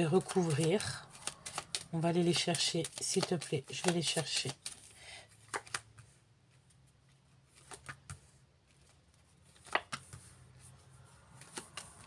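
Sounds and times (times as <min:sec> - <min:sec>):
playing cards snapping: 0:00.4 - 0:04.9, 0:05.5 - 0:05.9, 0:09.5 - 0:10.2
card slapping on table: 0:09.6 - 0:10.2.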